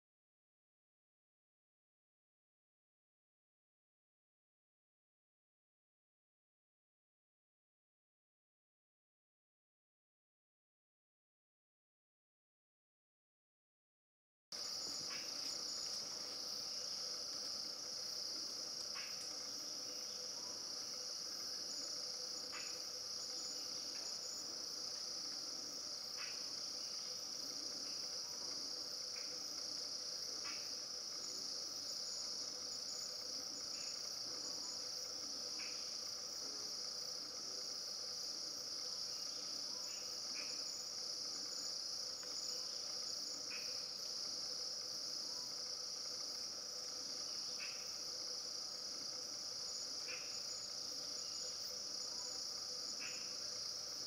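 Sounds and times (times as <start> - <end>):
insect chorus drone: 14.5 - 54.0
faint insect chirps: 14.6 - 54.0.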